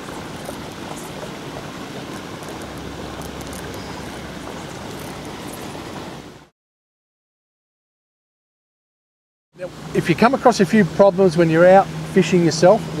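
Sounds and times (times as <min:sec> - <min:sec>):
outdoor rumble and hiss: 0:00.0 - 0:06.5, 0:09.6 - 0:13.0.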